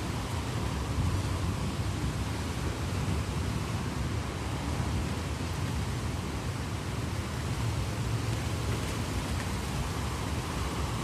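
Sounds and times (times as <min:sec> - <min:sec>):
heavy rain: 0:00.0 - 0:11.0.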